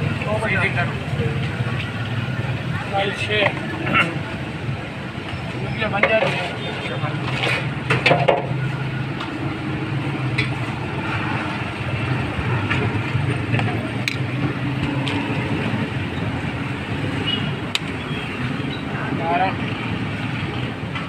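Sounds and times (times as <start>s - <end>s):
street traffic hum: 0.0s - 21.0s.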